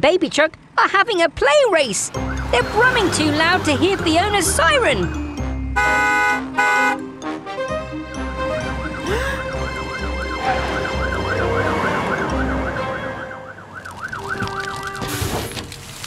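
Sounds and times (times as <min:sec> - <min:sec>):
cartoon siren wailing: 0:02.1 - 0:04.9, 0:08.6 - 0:15.1.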